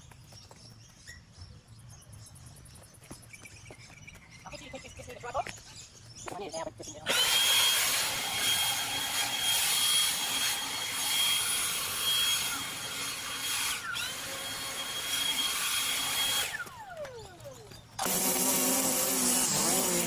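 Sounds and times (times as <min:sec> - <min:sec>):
leaf blower motor whine: 0:07.0 - 0:20.0.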